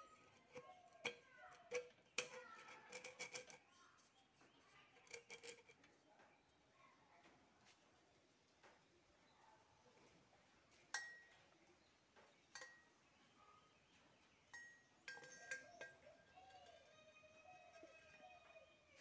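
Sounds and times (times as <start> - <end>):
metal bottle and cap clinking: 0.0 - 3.6, 10.9 - 11.3, 12.5 - 12.9, 14.5 - 16.8.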